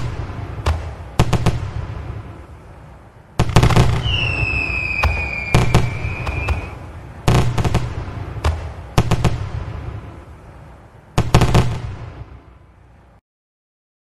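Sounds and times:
fireworks bangs with crackle: 0:00.0 - 0:02.8, 0:03.4 - 0:10.4, 0:11.1 - 0:12.6
whistling firework: 0:03.4 - 0:09.8.

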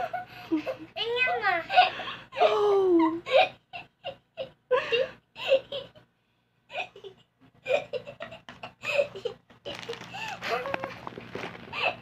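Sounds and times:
children giggling: 0:06.7 - 0:11.0.

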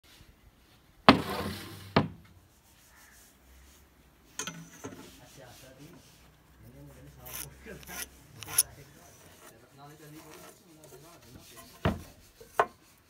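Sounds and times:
wood scraping on table: 0:07.2 - 0:09.5
steel square clicking on wood: 0:07.3 - 0:08.7.

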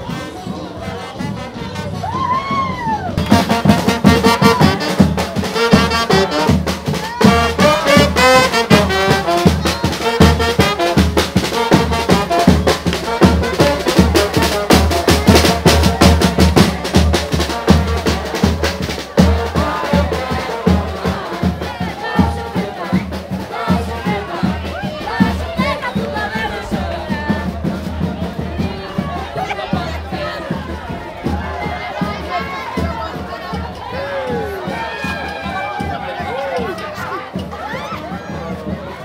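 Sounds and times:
brass band melody: 0:00.0 - 0:02.6, 0:03.2 - 0:37.7
fast steady percussion: 0:00.0 - 0:39.0.

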